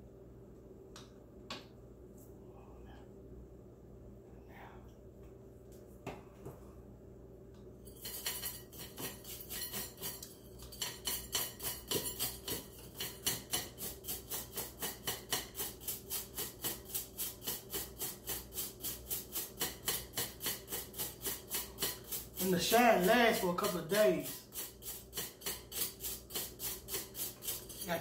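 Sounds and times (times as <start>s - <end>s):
toothbrush scrubbing jewelry: 8.0s - 14.5s, 20.7s - 28.0s.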